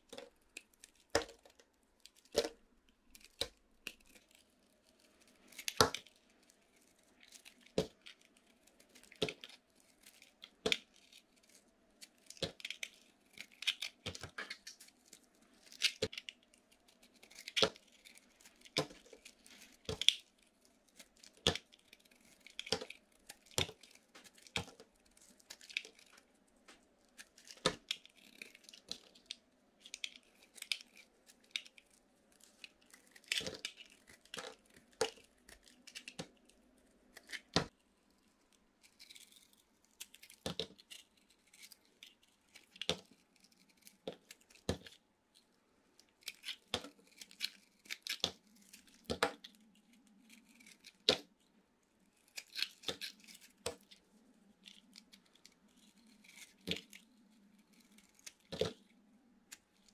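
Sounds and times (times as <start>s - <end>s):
knife cutting soap crunching: 0.0s - 45.0s, 46.0s - 59.9s
knife scraping soap: 0.1s - 37.5s, 46.0s - 51.4s, 52.0s - 59.9s.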